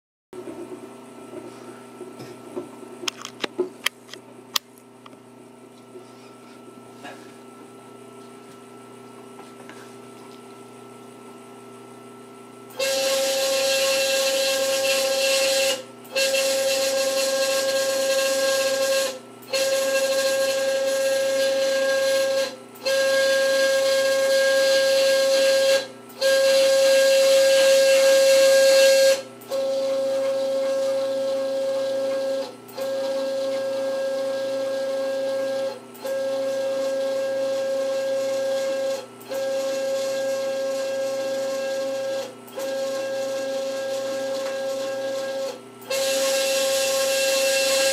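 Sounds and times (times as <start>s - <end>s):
stepper motor whine: 12.7s - 47.9s.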